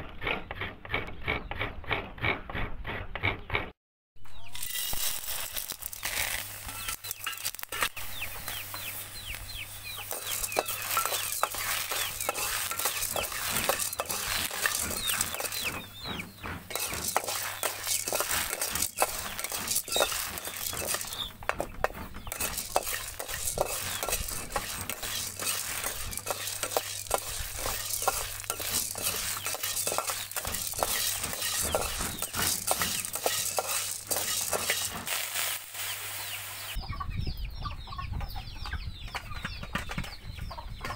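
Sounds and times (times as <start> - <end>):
metal spatula scraping wok: 4.4 - 36.8
beans rattling in pan: 4.5 - 8.6, 10.0 - 16.0, 16.6 - 36.7
chickens clucking: 6.7 - 35.0, 35.8 - 40.9.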